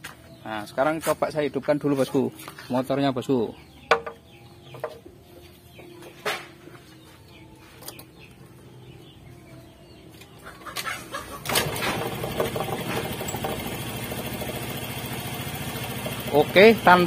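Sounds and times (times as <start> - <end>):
scooter engine starting and idling: 10.6 - 17.0.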